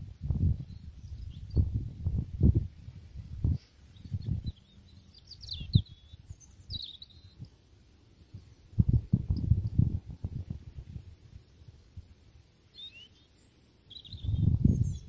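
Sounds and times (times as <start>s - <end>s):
wind buffeting the microphone: 0.0s - 7.5s, 8.3s - 12.2s, 14.0s - 15.0s
small birds chirping: 0.4s - 15.0s.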